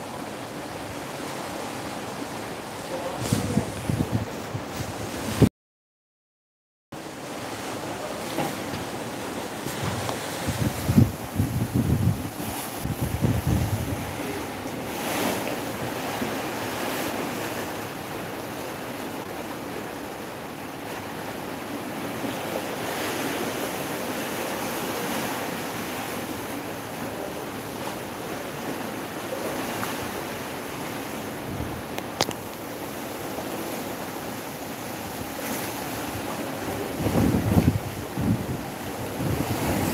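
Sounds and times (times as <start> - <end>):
sea water rushing along hull: 0.0 - 5.5, 7.0 - 39.9
wind buffeting microphone: 3.0 - 5.5, 9.6 - 16.2, 31.4 - 32.3, 35.1 - 39.9.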